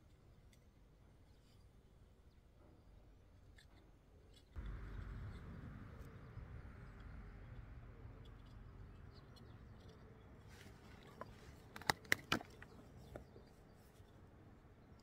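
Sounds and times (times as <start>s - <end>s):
low steady rumble: 4.6s - 11.7s
faint scrapes and clicks: 6.9s - 14.4s.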